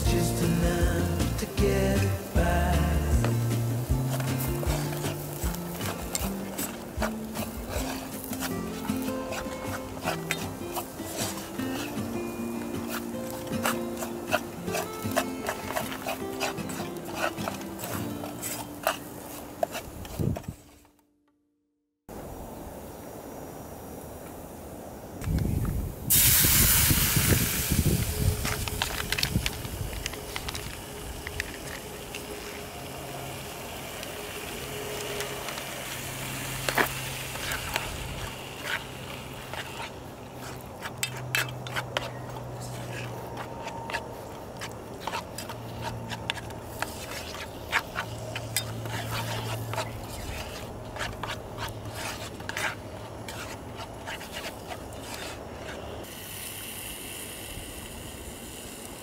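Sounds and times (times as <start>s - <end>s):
food sizzling in a pan: 0.0s - 19.9s, 26.0s - 43.2s, 44.6s - 59.0s
utensil scraping a pan: 0.4s - 20.8s, 34.9s - 56.0s.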